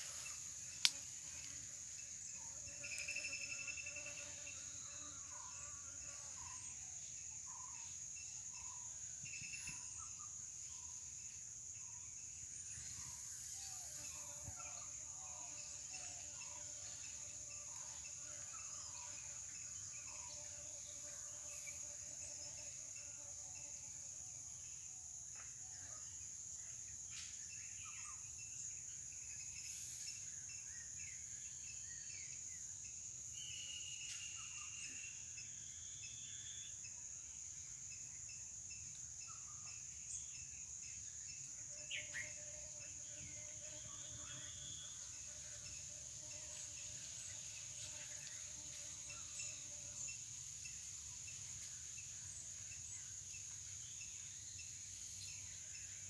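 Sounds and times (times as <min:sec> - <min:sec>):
high-pitched insect drone: 0:11.7 - 0:23.9, 0:27.6 - 0:37.3, 0:37.9 - 0:56.0.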